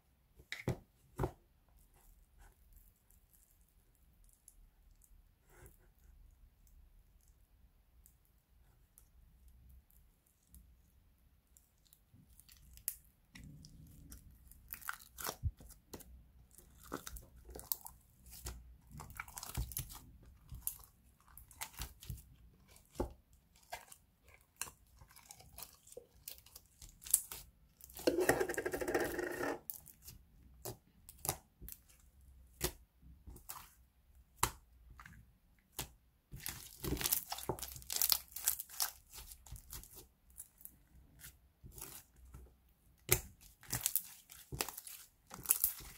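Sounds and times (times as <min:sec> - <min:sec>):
slime squelching: 0:01.8 - 0:45.9
slime crackling and tearing: 0:35.7 - 0:42.1, 0:43.0 - 0:45.9.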